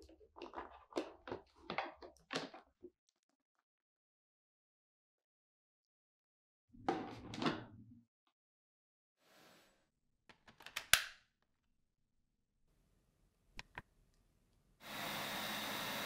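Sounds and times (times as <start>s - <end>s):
accessory snapping into place: 10.3s - 11.2s
vacuum motor whirring: 14.8s - 16.0s.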